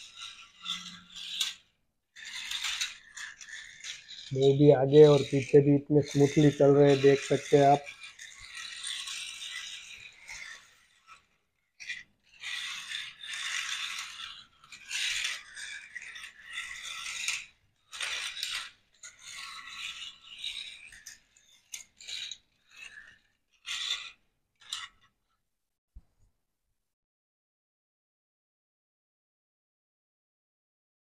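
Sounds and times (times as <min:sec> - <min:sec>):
toy tractor flywheel whirring: 0:00.0 - 0:25.3
toy wheels rolling on hard floor: 0:00.0 - 0:25.4.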